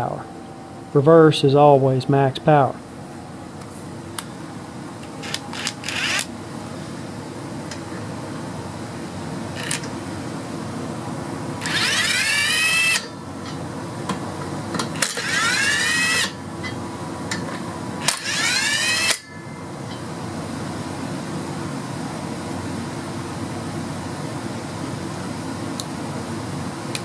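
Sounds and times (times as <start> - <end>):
steady fan-like hum: 0.0 - 27.0
cordless impact wrench whining: 5.0 - 6.3, 9.6 - 9.9, 11.6 - 13.2, 14.8 - 16.4, 18.0 - 19.3.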